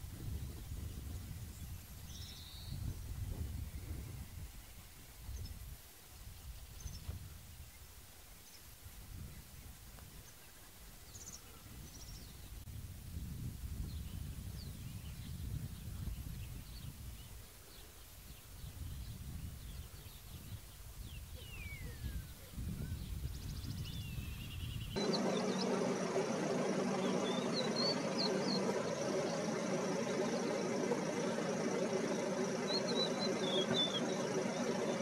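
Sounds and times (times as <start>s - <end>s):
wind rumbling on microphone: 0.0s - 7.8s, 11.6s - 17.5s, 18.3s - 35.0s
engine idling hum: 25.0s - 35.0s.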